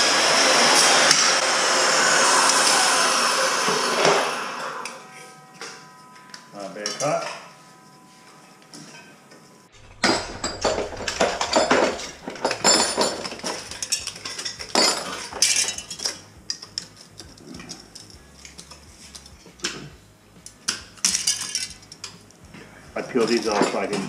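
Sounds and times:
metal tools clinking and scraping: 0:04.8 - 0:19.9, 0:20.7 - 0:22.3, 0:23.0 - 0:24.0.

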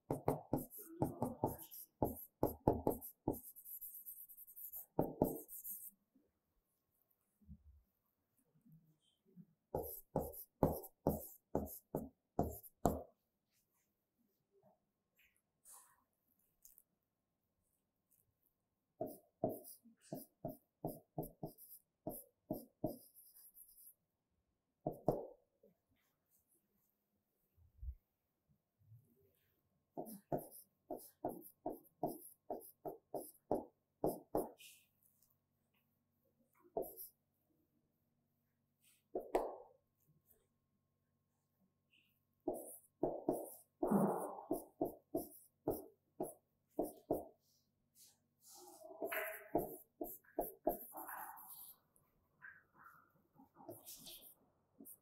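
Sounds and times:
pen writing on paper: 0:00.1 - 0:05.9, 0:09.8 - 0:13.0, 0:19.0 - 0:24.0, 0:30.0 - 0:34.6, 0:36.8 - 0:37.1, 0:42.5 - 0:47.4, 0:49.0 - 0:51.7.

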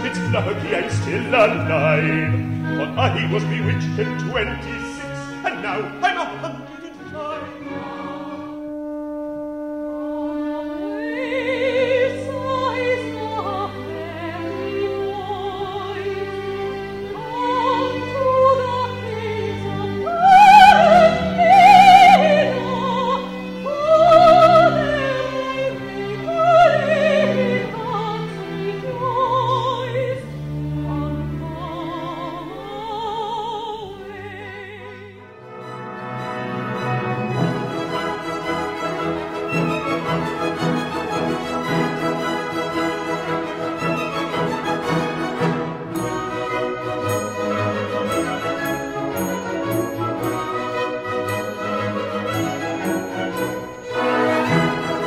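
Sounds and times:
operatic solo voice singing: 0:00.0 - 0:08.4, 0:17.2 - 0:30.2
orchestral accompaniment: 0:00.0 - 0:55.0.

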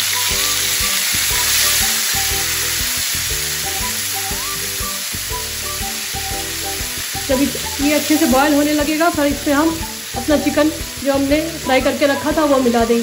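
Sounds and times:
background music: 0:00.0 - 0:13.0
water sizzling in hot oil: 0:00.0 - 0:13.0.

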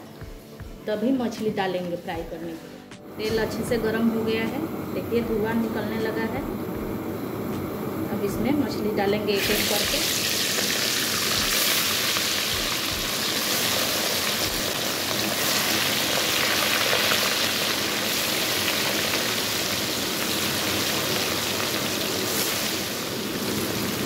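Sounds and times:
fish sizzling in hot oil: 0:09.4 - 0:24.0.

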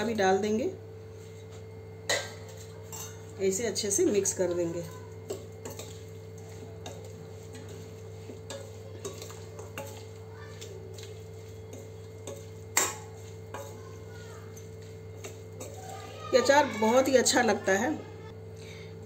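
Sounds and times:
steady low hum: 0:00.0 - 0:19.0
spoon clinking in steel bowl: 0:02.1 - 0:03.3, 0:04.2 - 0:07.8, 0:08.5 - 0:15.9.

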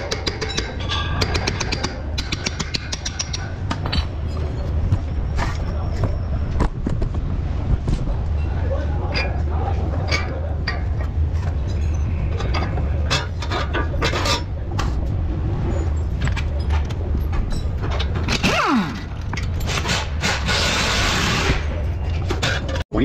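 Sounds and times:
metal clicks and scraping from tools: 0:00.0 - 0:04.8, 0:09.1 - 0:15.0, 0:16.2 - 0:22.8
steady low hum: 0:00.0 - 0:23.0.

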